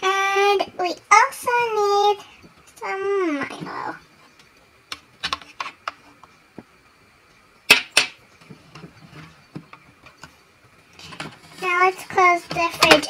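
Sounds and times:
plastic toys clicking and tapping: 4.9 - 6.0, 12.4 - 13.0.

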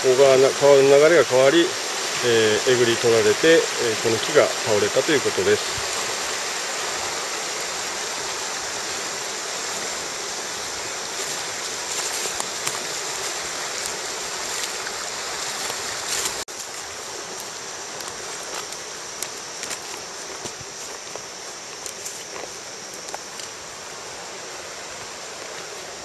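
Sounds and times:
stream rushing over rocks: 0.0 - 26.0
footsteps through undergrowth: 10.5 - 23.9, 24.5 - 26.0.

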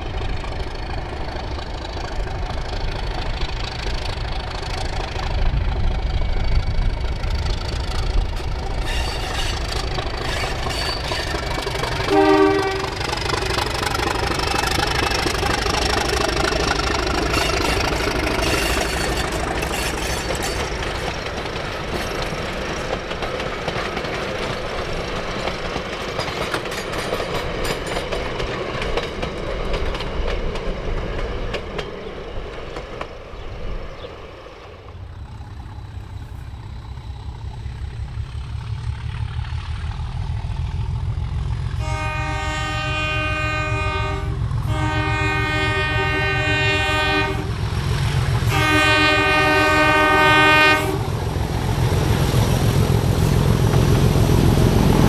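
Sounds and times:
diesel locomotive engine rumble: 0.0 - 55.0
train wheels clattering on track: 0.0 - 55.0
locomotive horn blasts: 12.0 - 13.1, 41.8 - 47.6, 48.4 - 51.1.

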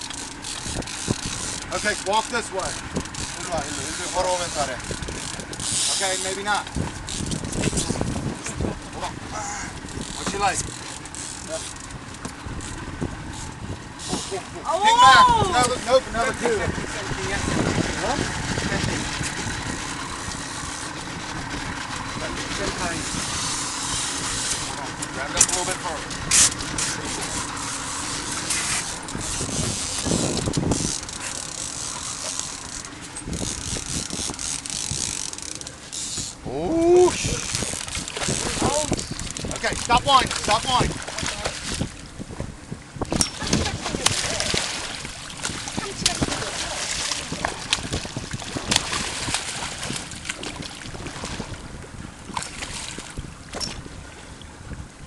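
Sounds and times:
fishing reel ratcheting: 0.0 - 8.1, 9.6 - 14.5, 19.2 - 40.8
sea noise: 0.0 - 55.0
wind: 0.0 - 55.0
water splashing against boat hull: 35.6 - 55.0
fish thrashing at surface: 43.1 - 51.5.

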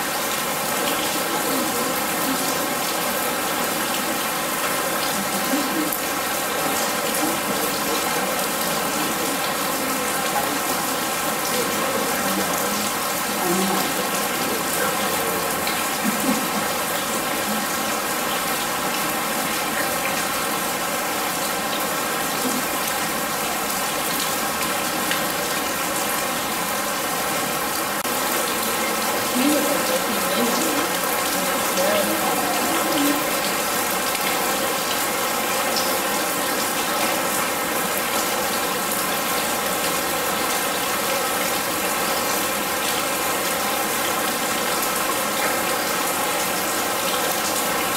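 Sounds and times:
rain splashing into water: 0.0 - 47.9.

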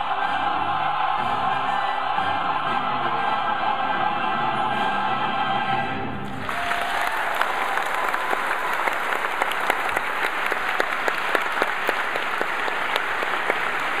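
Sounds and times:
audience applauding: 6.3 - 14.0.

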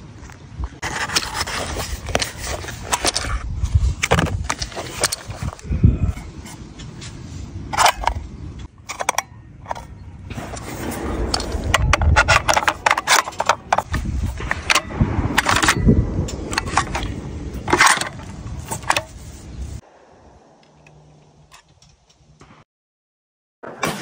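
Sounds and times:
low rumble on microphone: 5.2 - 8.6, 9.8 - 21.4
metallic clicks of cartridges: 7.7 - 9.9.

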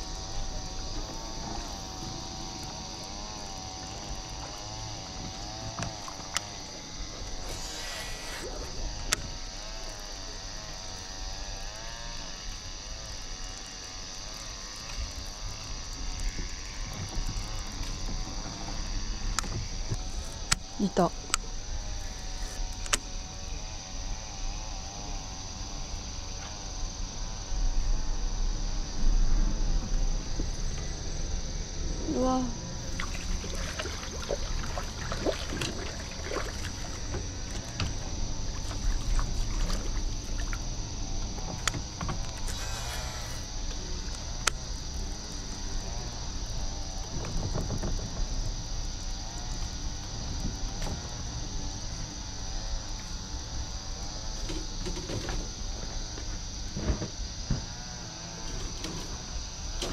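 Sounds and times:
water splashing and sloshing: 0.0 - 9.3, 13.6 - 20.5, 32.8 - 42.7
insect chorus: 0.0 - 59.9
fishing reel winding: 7.3 - 9.2
low wind rumble: 22.8 - 54.8.

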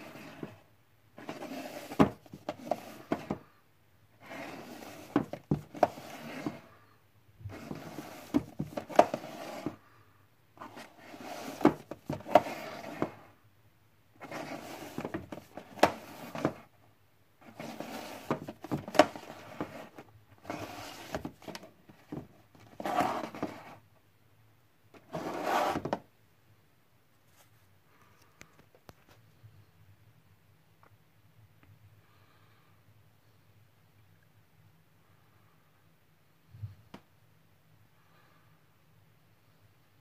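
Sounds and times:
plastic cases scraping on shelf: 0.0 - 3.5, 4.2 - 6.8, 7.5 - 9.8, 10.6 - 13.4, 14.2 - 16.7, 17.4 - 23.8, 25.0 - 26.0
plastic cases clacking: 4.9 - 6.7, 7.5 - 9.8, 10.7 - 13.2, 14.2 - 16.7, 17.5 - 23.6.

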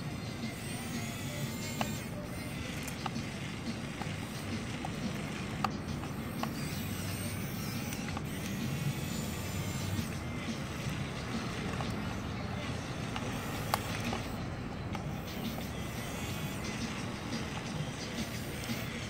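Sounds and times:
electric motors whirring: 0.0 - 19.0
sharp clicks: 0.9 - 8.8.

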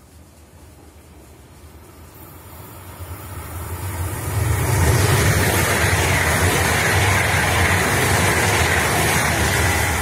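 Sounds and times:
high-speed train passing: 0.0 - 10.0
rushing hiss of air: 0.0 - 10.0
wheels rumbling on rail: 0.0 - 10.0.

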